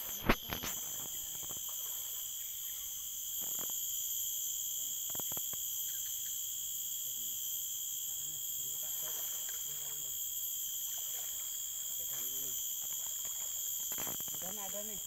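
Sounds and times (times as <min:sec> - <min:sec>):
insect chorus drone: 0:00.0 - 0:15.0.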